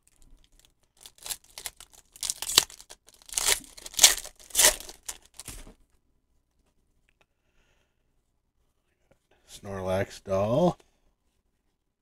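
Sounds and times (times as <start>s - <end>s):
foil wrapper tearing and crinkling: 0.0s - 5.6s.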